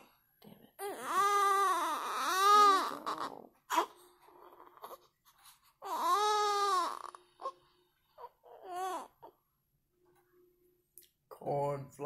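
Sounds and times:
newborn baby crying: 0:00.8 - 0:07.6, 0:08.2 - 0:09.4.

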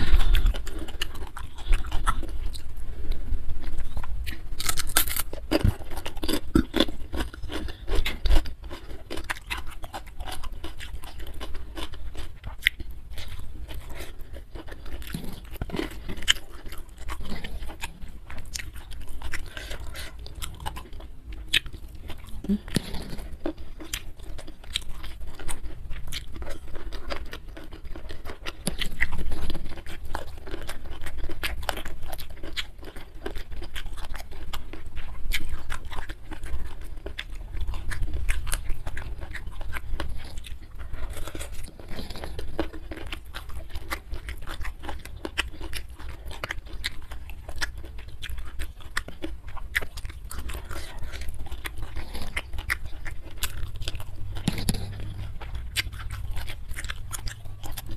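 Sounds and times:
chewing food: 0:00.0 - 0:57.9
wet mouth clicks: 0:54.2 - 0:57.9.

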